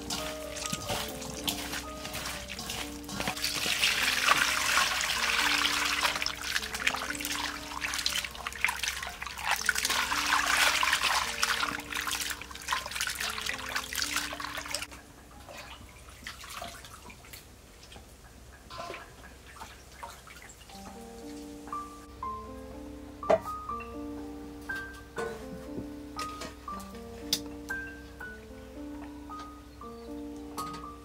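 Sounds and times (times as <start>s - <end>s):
hands rubbing in water: 0.0s - 14.3s
water pouring into steel bowl: 0.0s - 14.9s
water drips and small splashes: 0.0s - 21.9s.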